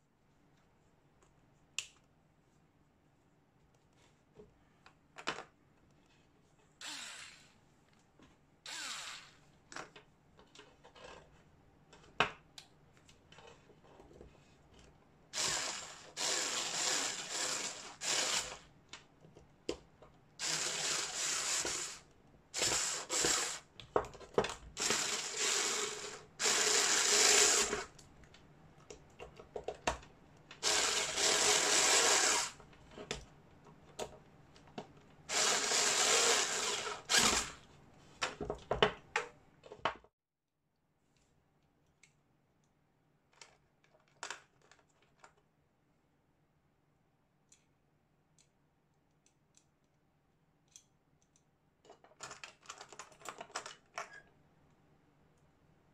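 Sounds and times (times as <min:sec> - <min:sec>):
electric screwdriver running: 0:06.8 - 0:07.5, 0:08.7 - 0:09.4, 0:15.4 - 0:18.6, 0:20.4 - 0:22.0, 0:22.6 - 0:23.6, 0:24.8 - 0:27.9, 0:30.6 - 0:32.6, 0:35.3 - 0:37.6.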